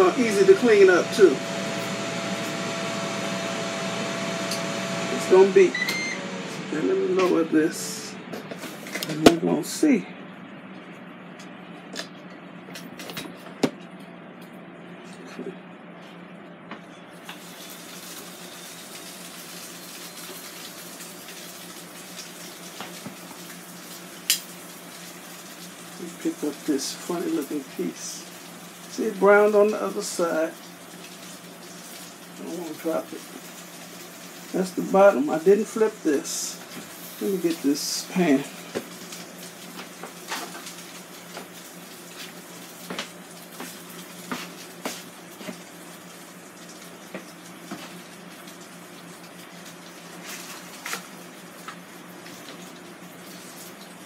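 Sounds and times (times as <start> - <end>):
steady low hum: 0.0 - 17.2
fan hum: 0.0 - 54.0.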